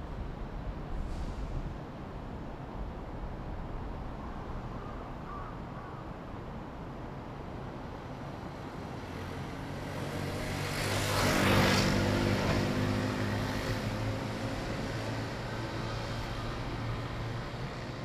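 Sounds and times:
vehicle passing by: 9.0s - 18.0s.

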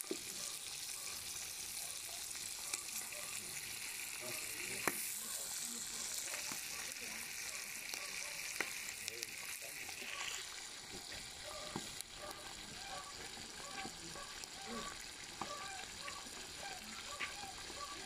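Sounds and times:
fat sizzling with pops: 0.0s - 18.0s.

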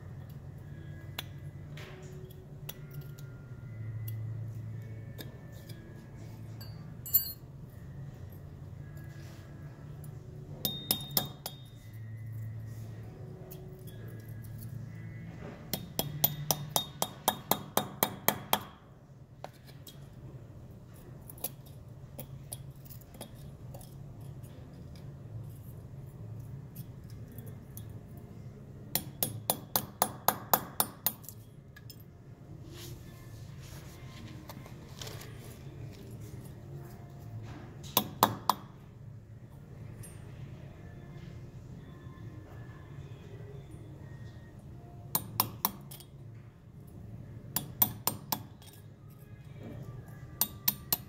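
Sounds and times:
small hammer tapping metal: 6.6s - 7.4s, 10.6s - 12.0s, 15.7s - 20.1s, 28.9s - 32.0s, 37.8s - 38.8s, 45.1s - 46.1s, 47.5s - 48.9s, 49.6s - 51.0s.

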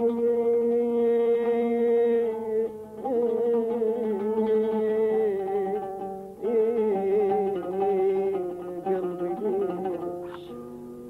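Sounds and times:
oud melody: 0.0s - 11.0s.

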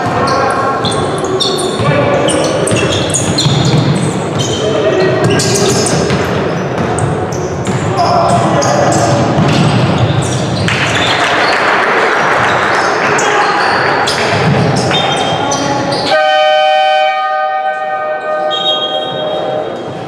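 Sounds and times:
noisy hall: 0.0s - 20.0s
steady horn: 16.1s - 19.0s.

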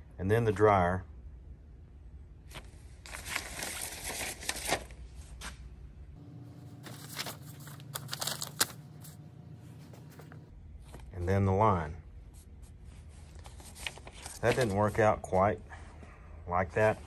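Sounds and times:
paper rustling: 2.5s - 5.6s, 6.6s - 11.1s, 12.4s - 15.2s.

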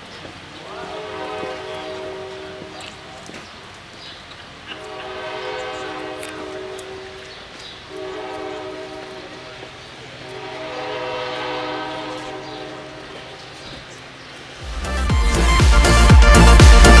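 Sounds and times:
train horn blasts: 0.7s - 3.0s, 4.8s - 14.0s.

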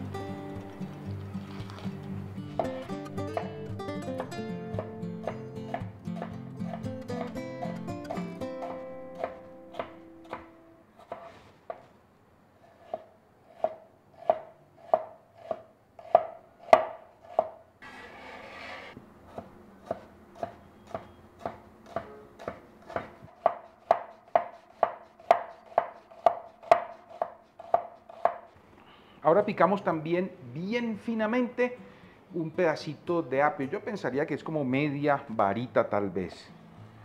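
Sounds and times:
knife chopping on cutting board: 4.2s - 7.4s, 8.1s - 11.9s, 12.8s - 17.6s, 19.3s - 28.5s
brief scraping noise: 17.8s - 19.0s.

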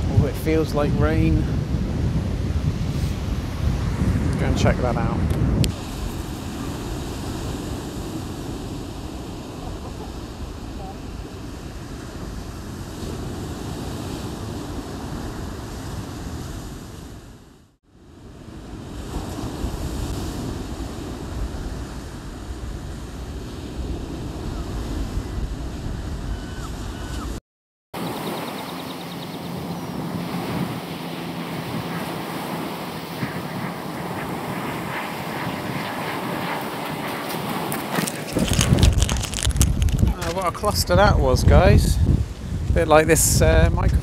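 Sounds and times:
wind buffeting microphone: 0.0s - 17.5s, 18.2s - 27.4s, 28.0s - 44.0s.

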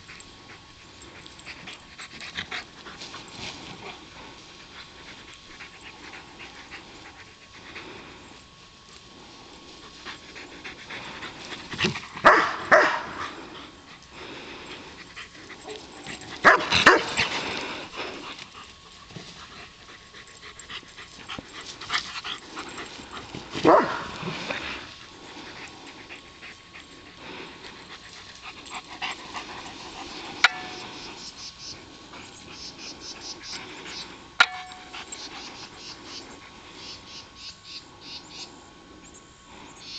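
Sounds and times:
dog barking: 12.2s - 13.2s, 16.4s - 17.1s, 23.6s - 24.2s.

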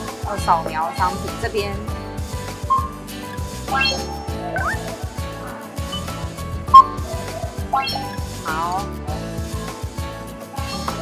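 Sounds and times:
background music with beat: 0.0s - 11.0s
rising gliding tone: 3.7s - 5.0s.

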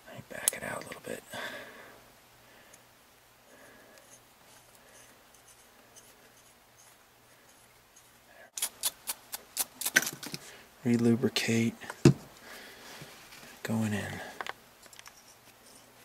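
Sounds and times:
faint metal scratching: 3.9s - 8.6s, 14.8s - 16.0s.

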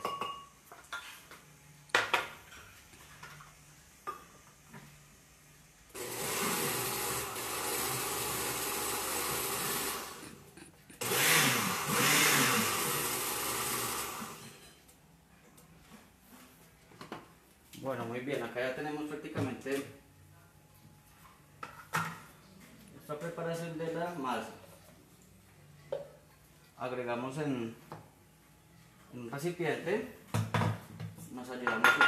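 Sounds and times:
blender mixing batter: 5.9s - 14.6s.

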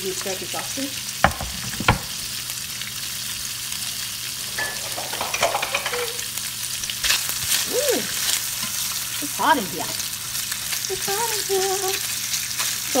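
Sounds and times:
sausages sizzling in oil: 0.0s - 13.0s
sharp tap: 1.2s - 2.2s.

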